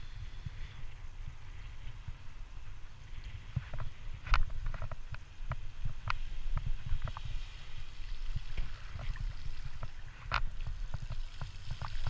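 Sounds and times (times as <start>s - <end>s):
bike clicks and rattles: 3.6s - 7.4s.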